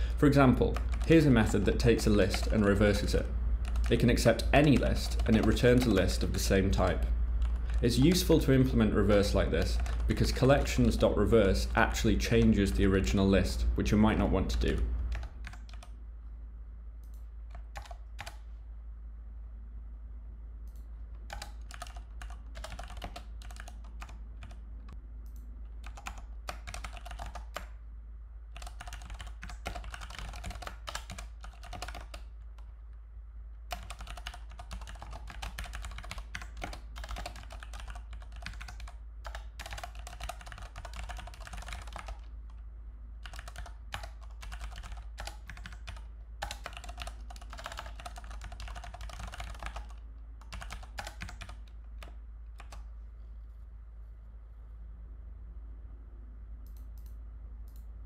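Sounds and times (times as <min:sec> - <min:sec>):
steady low hum: 0:00.0 - 0:58.0
typing on computer keyboard: 0:00.6 - 0:02.7, 0:03.6 - 0:04.0, 0:04.6 - 0:06.2, 0:09.2 - 0:11.0, 0:15.0 - 0:15.9, 0:17.0 - 0:18.4, 0:20.7 - 0:24.6, 0:25.3 - 0:27.8, 0:28.6 - 0:32.7, 0:33.7 - 0:42.6, 0:43.2 - 0:52.8.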